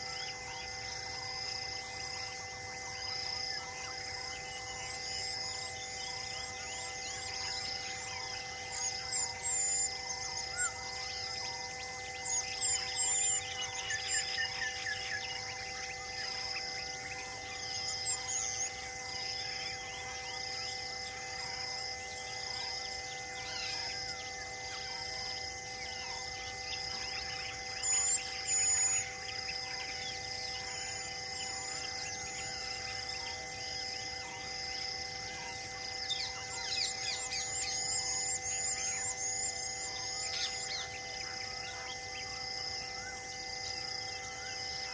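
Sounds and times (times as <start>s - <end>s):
faint steady hum: 0.0s - 44.9s
pulsing high call: 0.0s - 44.9s
birds chirping and whistling: 3.1s - 20.9s, 25.9s - 34.5s, 35.2s - 42.4s.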